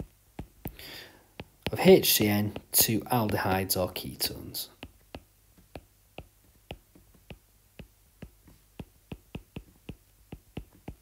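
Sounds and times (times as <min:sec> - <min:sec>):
stylus tapping on glass screen: 0:00.0 - 0:04.0, 0:04.8 - 0:11.0.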